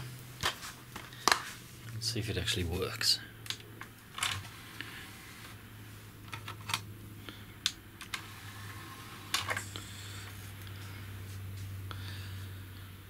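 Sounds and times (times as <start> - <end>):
steady low hum: 0.0 - 13.0
disc tray clicks and clatter: 3.5 - 4.5, 8.0 - 8.2.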